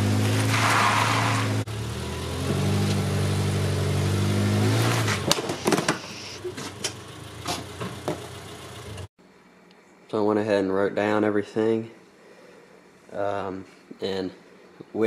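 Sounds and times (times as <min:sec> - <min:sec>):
car engine idling: 0:05.9 - 0:09.1.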